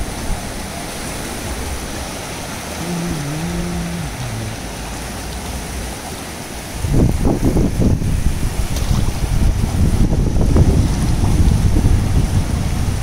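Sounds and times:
sea surf over rocks: 0:00.0 - 0:13.0
wind on microphone: 0:02.8 - 0:04.9, 0:06.7 - 0:13.0
short low tone: 0:02.8 - 0:05.2.

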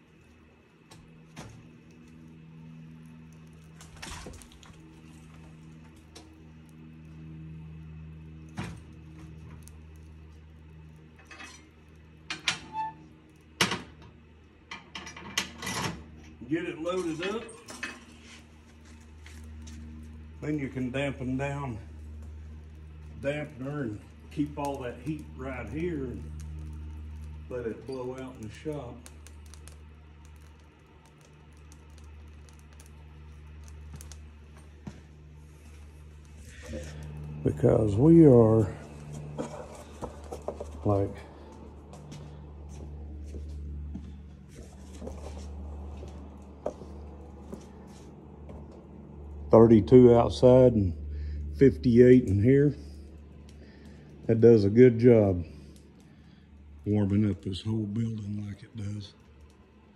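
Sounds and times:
steady low hum: 0:00.0 - 0:59.9
wood fire crackling: 0:00.0 - 0:59.9
sharp cracks: 0:21.9 - 0:37.8.

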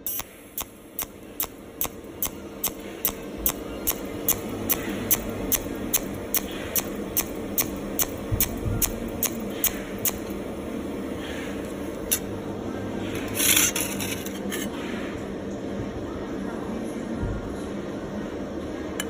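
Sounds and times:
welding torch pulsing ticks: 0:00.0 - 0:10.4
steady low hum: 0:00.0 - 0:19.0.

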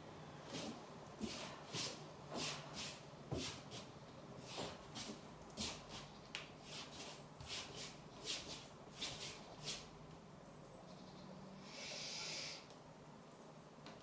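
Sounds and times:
quick hissy breaths: 0:11.6 - 0:12.7.

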